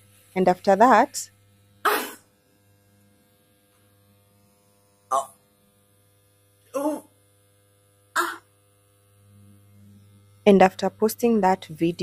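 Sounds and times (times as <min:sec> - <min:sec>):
faint electrical hum: 0:00.0 - 0:12.0
woman clearing throat: 0:01.8 - 0:02.3, 0:05.1 - 0:05.4, 0:06.7 - 0:07.1, 0:08.2 - 0:08.5.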